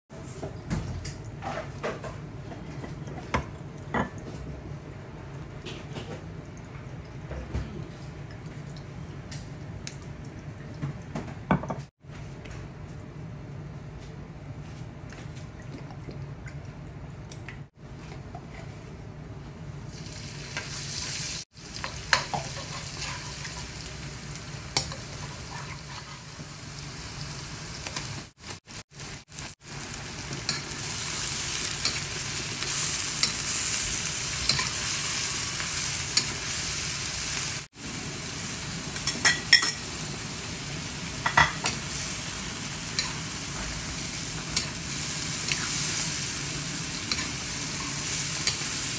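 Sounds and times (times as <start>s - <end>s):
vegetables sizzling in hot oil: 19.9s - 48.9s.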